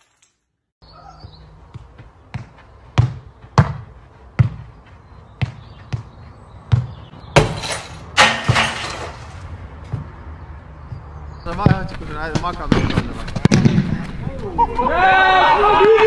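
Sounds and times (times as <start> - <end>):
football kicked thuds: 2.3 - 4.6, 6.7 - 7.6.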